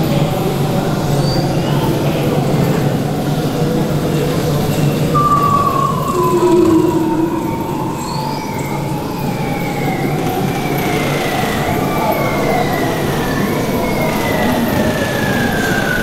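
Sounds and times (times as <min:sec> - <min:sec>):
marine mammal calls: 0:05.2 - 0:08.7.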